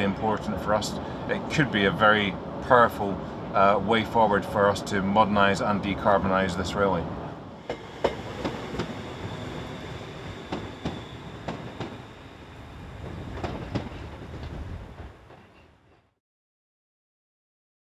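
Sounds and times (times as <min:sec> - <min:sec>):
train rumble: 0:00.0 - 0:16.2
train wheels clicking over joints: 0:07.6 - 0:16.0.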